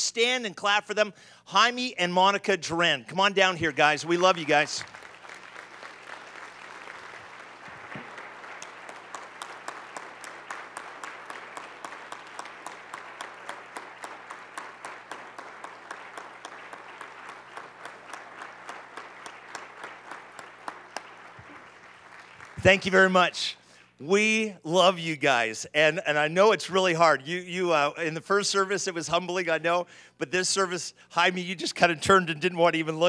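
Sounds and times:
crowd applauding: 3.7s - 23.4s
sharp individual claps: 4.2s - 23.1s.

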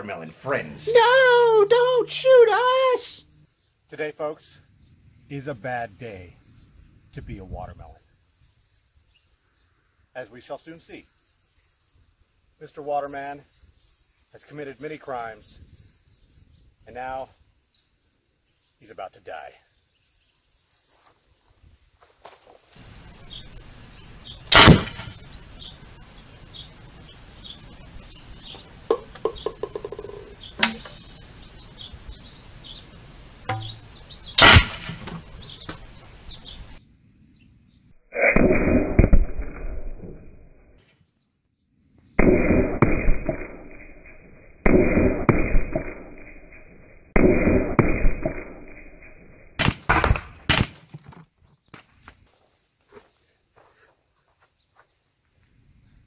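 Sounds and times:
deep dull booms: 24.5s - 25.2s
air gun firing cracks: 24.5s - 25.4s, 28.9s - 31.0s, 33.4s - 36.3s, 38.3s - 40.0s, 42.2s - 46.6s, 47.2s - 50.8s.

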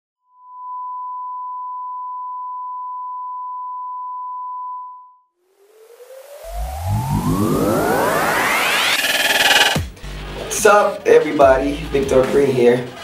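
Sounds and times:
pure electronic tone: 0.3s - 9.9s
hissy rising whoosh: 5.6s - 9.9s
music: 6.5s - 13.0s.

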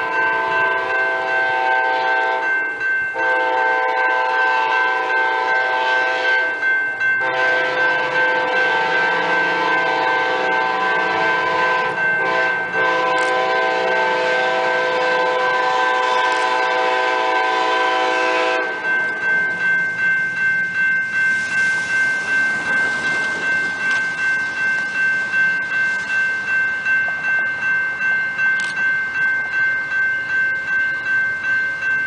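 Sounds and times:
locomotive horn blasts: 0.0s - 2.5s, 3.2s - 6.6s, 7.2s - 19.0s
railroad crossing bell: 0.0s - 32.0s.

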